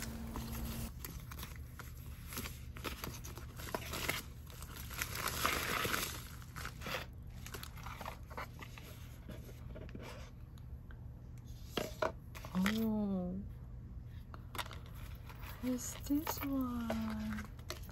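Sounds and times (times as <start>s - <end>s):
plastic and paper packaging crinkling: 0.0s - 9.6s, 14.6s - 17.9s.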